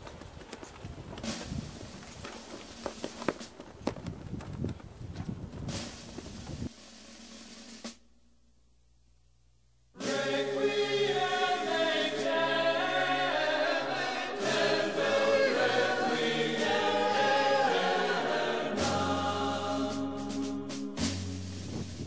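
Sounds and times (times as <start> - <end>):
choir singing sustained chords: 10.0 - 21.4.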